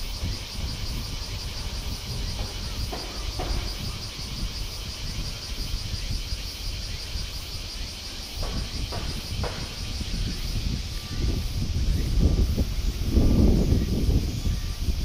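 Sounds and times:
high-pitched insect chorus: 0:00.0 - 0:15.0
faint knocks: 0:02.3 - 0:04.2.

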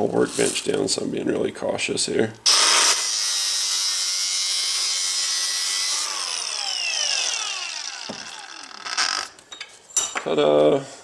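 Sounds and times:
angle grinder grinding steel: 0:02.5 - 0:09.4.

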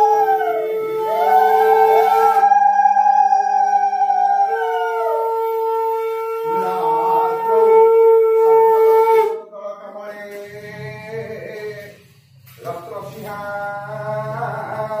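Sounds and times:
conch shell blowing: 0:00.0 - 0:09.4.

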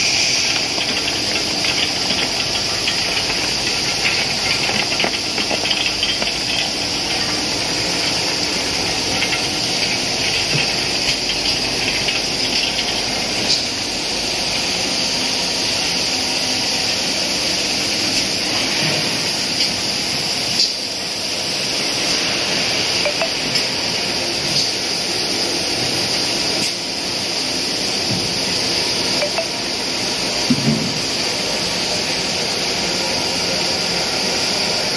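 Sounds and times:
machine hissing rush: 0:00.0 - 0:05.4.

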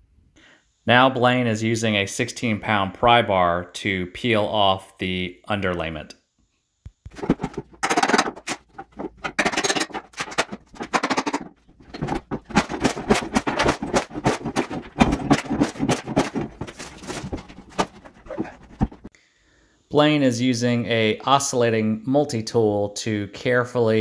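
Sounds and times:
sharp cracks and knocks: 0:06.9 - 0:19.1
pry bars scraping underlayment: 0:07.2 - 0:19.1.

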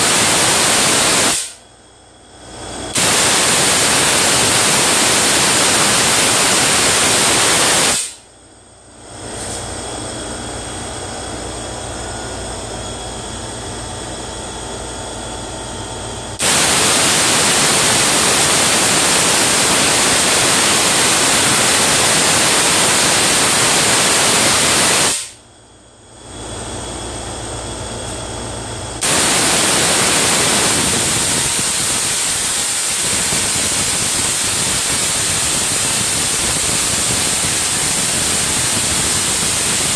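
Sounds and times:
tesla coil hissing crackle: 0:00.0 - 0:01.6, 0:02.9 - 0:08.2, 0:16.4 - 0:25.4, 0:29.0 - 0:39.9.

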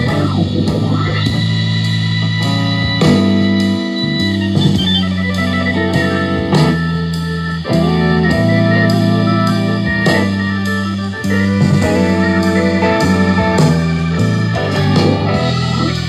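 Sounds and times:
guitar-led music from speaker: 0:00.0 - 0:16.0.

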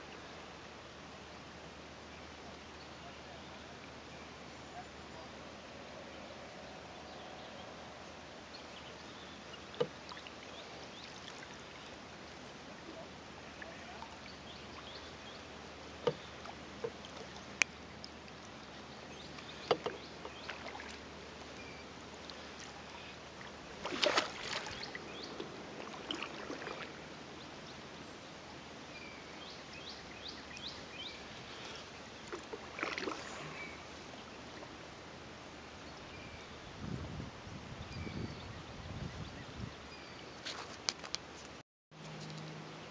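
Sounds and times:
paddle knocking on kayak: 0:09.8 - 0:10.0, 0:16.0 - 0:17.0, 0:19.6 - 0:20.6
water washing: 0:22.4 - 0:27.0
wind noise: 0:36.6 - 0:39.9.

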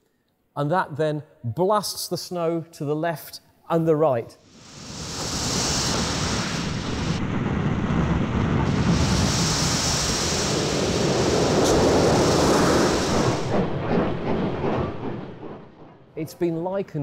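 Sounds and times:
snowplough rushing roar through snow: 0:04.7 - 0:13.5.

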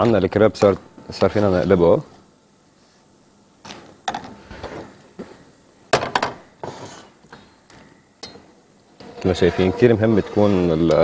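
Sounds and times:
spatula scraping pan: 0:09.0 - 0:11.0.

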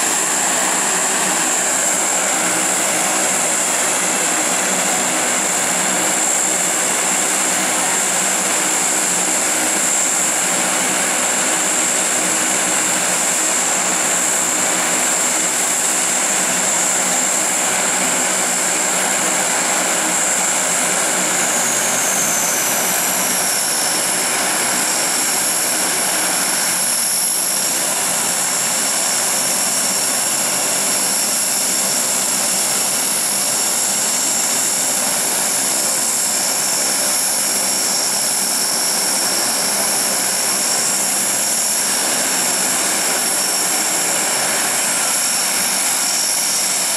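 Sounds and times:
high turbine whine: 0:00.0 - 0:46.9
propeller drone: 0:00.0 - 0:46.9.

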